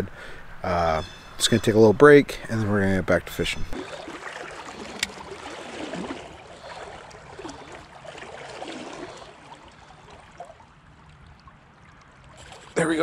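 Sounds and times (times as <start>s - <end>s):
creek water gurgling over rocks: 3.8s - 13.0s.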